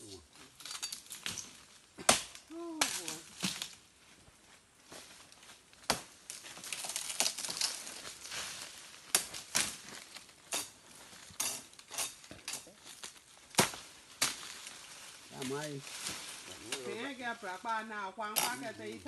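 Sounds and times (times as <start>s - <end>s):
dry fronds rustling: 0.2s - 19.0s
bamboo stems cracking: 0.5s - 3.8s, 5.3s - 16.9s.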